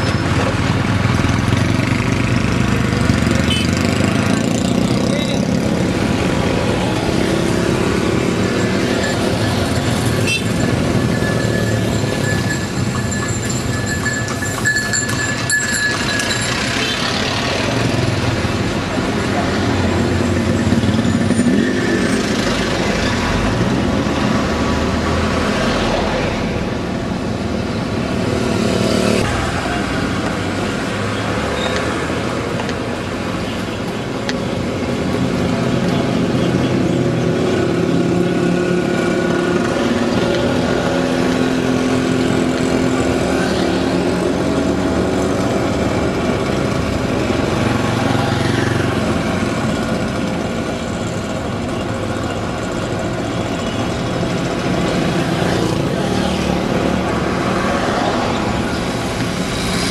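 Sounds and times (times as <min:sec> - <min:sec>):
vehicle engine and road noise: 0:00.0 - 0:59.9
small motorcycle engines: 0:00.2 - 0:23.2.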